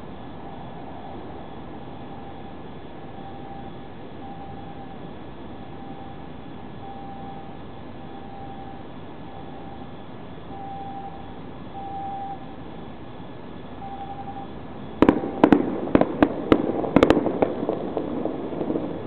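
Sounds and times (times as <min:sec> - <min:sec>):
fireworks bangs with echo: 0:15.0 - 0:19.0.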